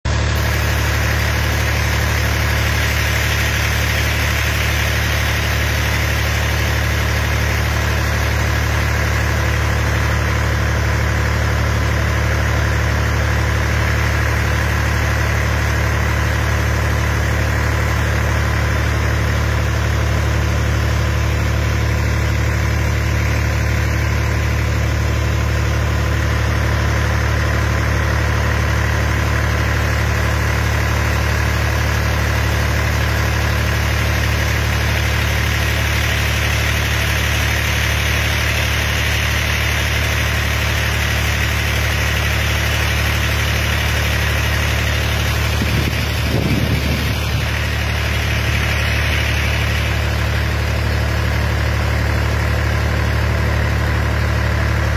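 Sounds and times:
engine humming steadily: 0:00.0 - 0:54.9
water spraying from sprinklers: 0:00.4 - 0:10.0, 0:30.7 - 0:50.9.

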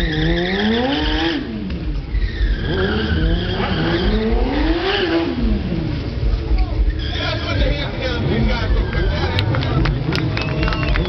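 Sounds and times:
tyre squeal: 0:00.0 - 0:01.3, 0:02.0 - 0:04.2, 0:06.9 - 0:07.5
motorcycle engine revving: 0:00.0 - 0:11.0.

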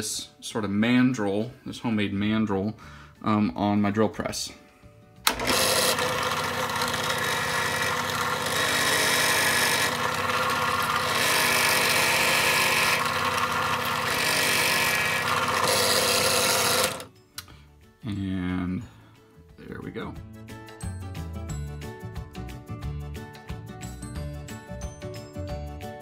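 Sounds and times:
drill press motor hum: 0:05.3 - 0:17.1.

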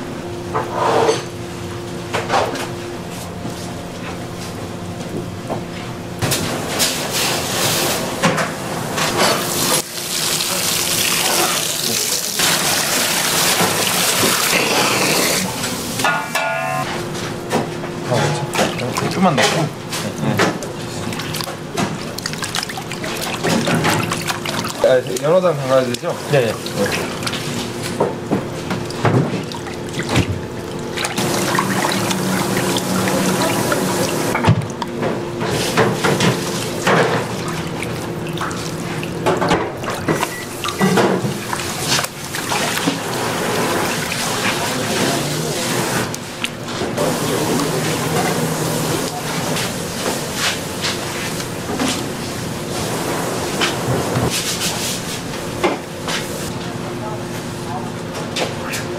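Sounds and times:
tap water running into sink: 0:09.2 - 0:15.7, 0:20.4 - 0:34.9.

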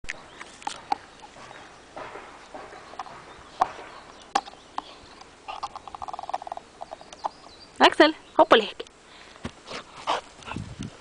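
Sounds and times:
soft rustling on grass: 0:07.6 - 0:11.0.

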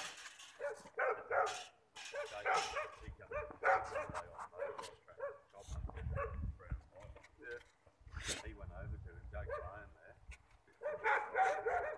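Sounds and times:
dogs barking: 0:00.6 - 0:05.5, 0:06.1 - 0:06.4, 0:09.4 - 0:09.8, 0:10.8 - 0:11.9.

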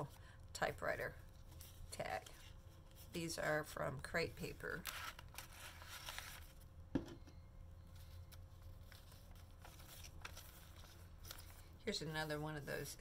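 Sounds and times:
low steady hum: 0:00.0 - 0:13.0
paper rustling and sliding: 0:04.9 - 0:06.6, 0:08.0 - 0:11.7.

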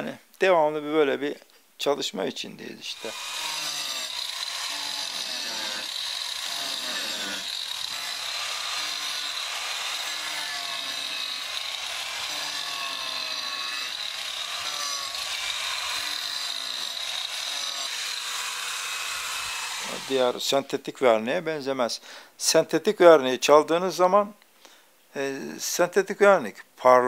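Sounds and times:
angle grinder on wood: 0:02.9 - 0:20.6.

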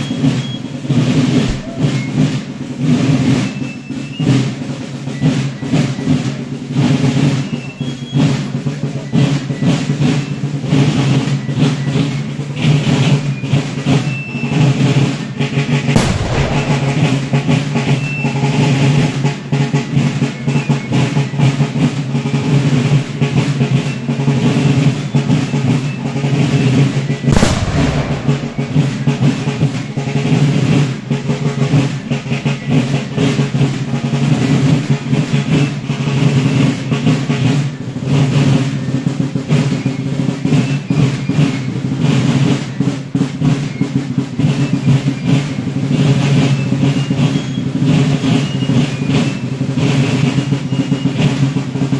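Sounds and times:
marching snare drums: 0:00.0 - 0:51.9
musket shot bang: 0:16.0 - 0:18.4, 0:27.3 - 0:30.4.

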